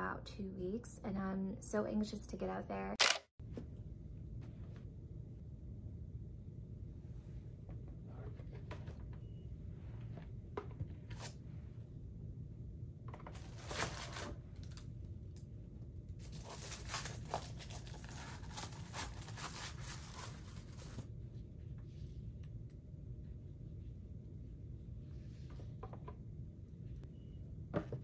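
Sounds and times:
paper rustling and crinkling: 13.2s - 14.9s, 16.2s - 21.1s.

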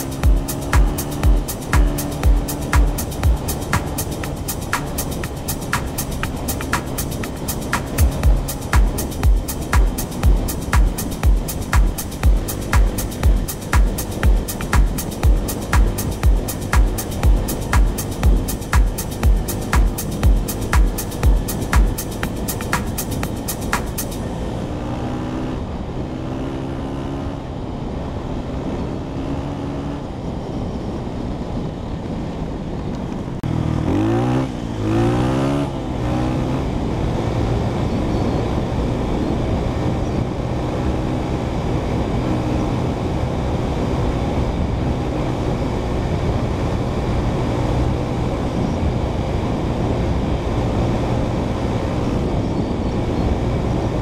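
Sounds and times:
dirt bike engine revving: 0.0s - 27.4s, 33.4s - 38.3s.

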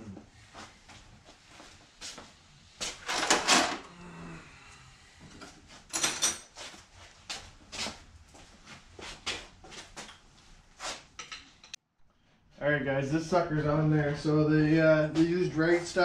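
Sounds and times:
metal tools clanking: 5.9s - 6.6s.

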